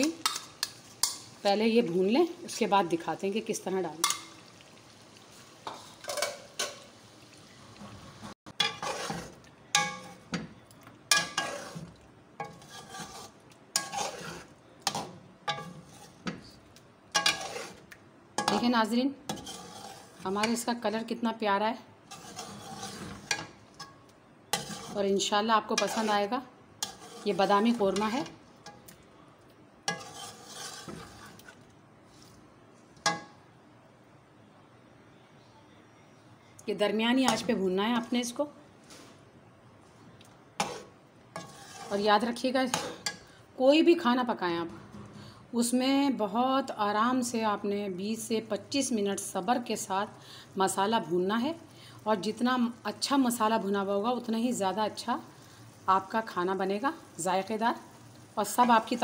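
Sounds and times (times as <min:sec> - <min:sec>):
metal spatula clinking on pot: 0:08.6 - 0:10.4, 0:14.8 - 0:16.0
metal spoon scraping a pot: 0:08.6 - 0:10.4, 0:11.1 - 0:16.4, 0:17.2 - 0:17.8, 0:18.4 - 0:20.7, 0:22.1 - 0:28.8, 0:29.9 - 0:31.6, 0:37.3 - 0:38.4, 0:40.6 - 0:43.3.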